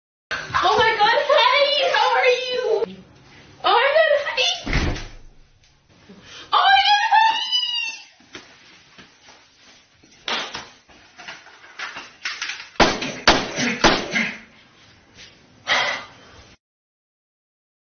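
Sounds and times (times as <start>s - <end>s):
people speaking: 0.5s - 3.0s, 3.6s - 4.7s, 6.5s - 8.1s.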